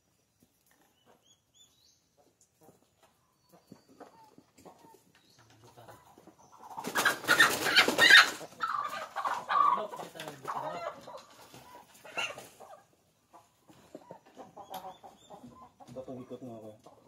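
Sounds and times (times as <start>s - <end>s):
chickens squawking and clucking: 2.2s - 17.0s
chicken wings flapping: 6.7s - 8.6s.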